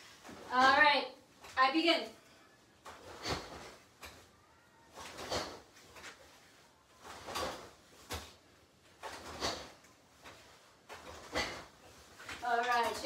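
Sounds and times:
uniform swishing and snapping: 2.8s - 13.0s.

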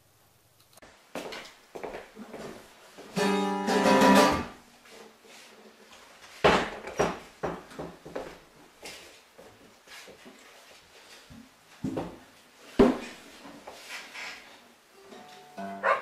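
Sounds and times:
acoustic guitar chord ringing: 3.2s - 4.6s, 15.0s - 16.0s
guitar being knocked: 3.2s - 4.6s.

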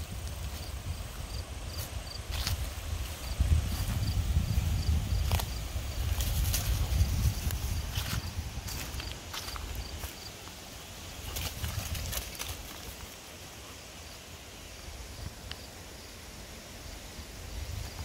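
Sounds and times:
footsteps crunching on dry leaves: 0.0s - 13.2s.

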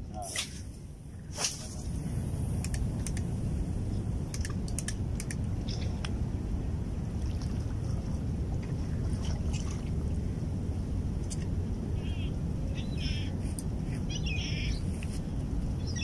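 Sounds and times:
wind rumbling on microphone: 0.0s - 16.0s
light clicks and ticks: 4.3s - 6.2s.

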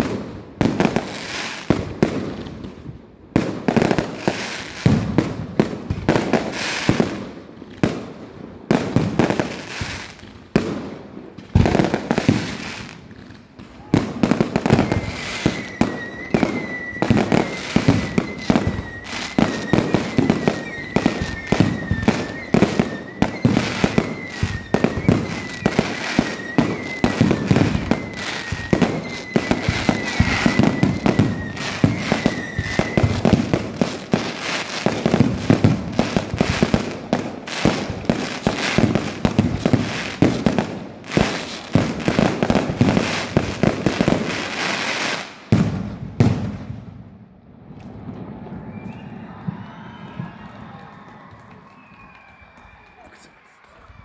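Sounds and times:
fireworks bangs and crackles: 0.0s - 54.0s
high wavering whistle: 14.6s - 33.5s, 48.4s - 54.0s.

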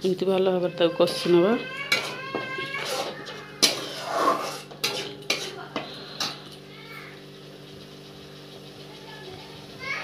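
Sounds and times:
spatula scraping and knocking pan: 1.0s - 6.5s
paste frying in oil: 1.2s - 10.0s.

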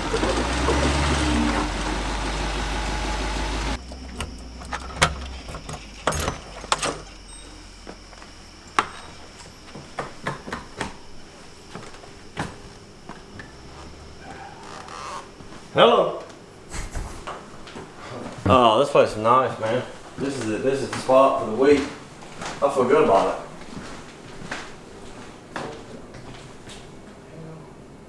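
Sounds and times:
truck engine humming: 0.0s - 15.5s
door opening: 2.8s - 11.1s, 12.4s - 15.4s.

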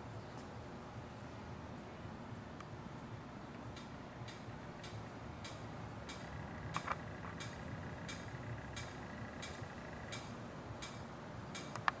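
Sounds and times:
faint mechanical ticking: 3.5s - 12.0s
loud mechanical clicks: 3.8s - 12.0s.

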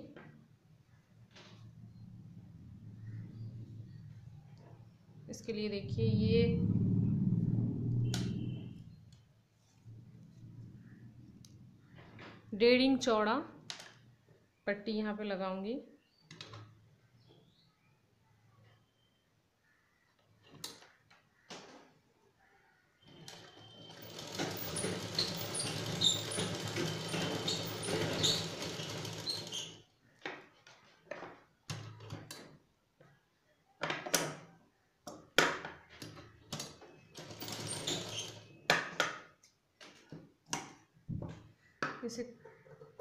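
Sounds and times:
sewing machine stitching: 23.1s - 29.8s, 36.6s - 38.6s.

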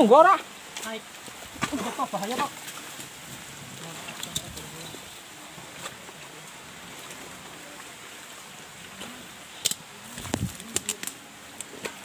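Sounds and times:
leaves rustling: 0.0s - 12.0s
twigs snapping: 9.6s - 12.0s.

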